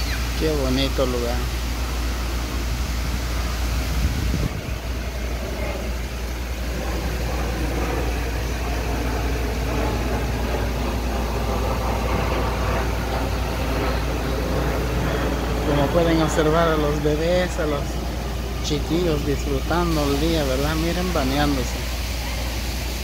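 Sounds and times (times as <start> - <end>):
fountain jets spraying water: 0.0 - 23.0
jet airliner rumble overhead: 0.0 - 23.0.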